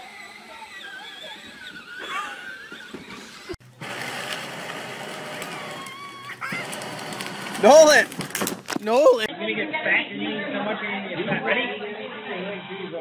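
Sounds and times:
children's voices and squeals: 0:00.0 - 0:03.6, 0:05.6 - 0:06.8.

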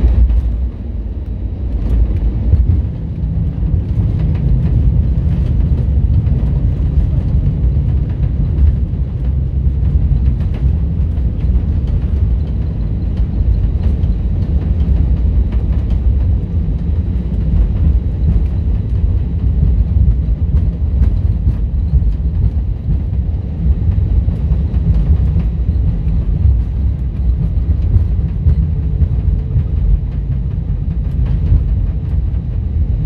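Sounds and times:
airplane cabin low rumble: 0:00.0 - 0:33.0.

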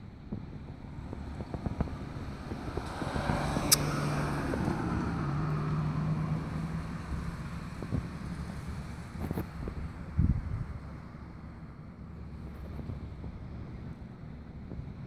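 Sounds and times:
vehicle engine rumble: 0:00.0 - 0:15.0
wind on microphone: 0:00.1 - 0:15.0
sharp click: 0:03.6 - 0:04.0.

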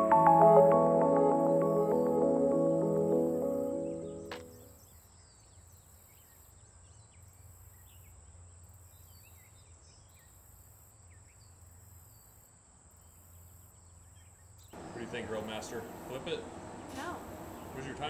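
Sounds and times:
bird chirps: 0:00.0 - 0:06.5, 0:14.2 - 0:17.9.

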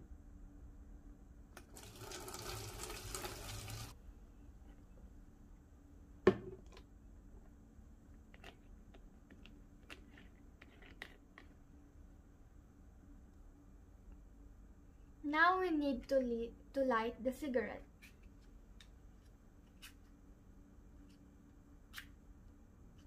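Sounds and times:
water pouring into plastic bottle: 0:01.6 - 0:04.0.

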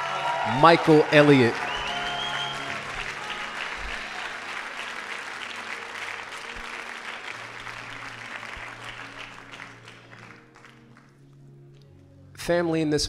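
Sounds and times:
congregation applauding: 0:00.0 - 0:11.2
soft music of held notes: 0:02.6 - 0:13.0.

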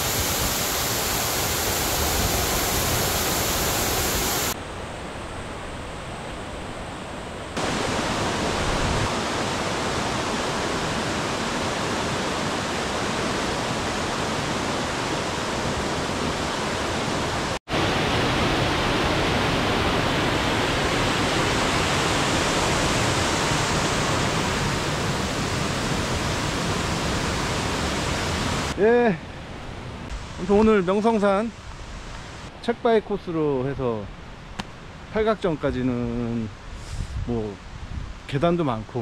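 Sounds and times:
stream rushing over rocks: 0:07.6 - 0:28.8.

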